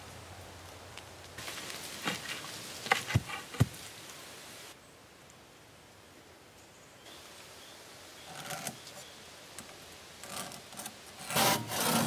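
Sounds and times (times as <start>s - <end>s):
dry leaves rustling underfoot: 0.0s - 4.8s
dull thumps tamping dirt: 1.4s - 3.8s.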